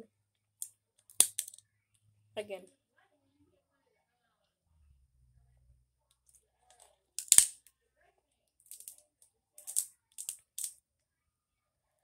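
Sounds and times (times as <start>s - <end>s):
crab shell cracking: 7.2s - 7.6s.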